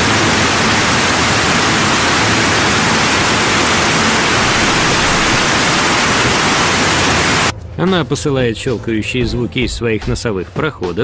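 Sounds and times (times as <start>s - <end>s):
loud steady static hiss: 0.0s - 7.5s.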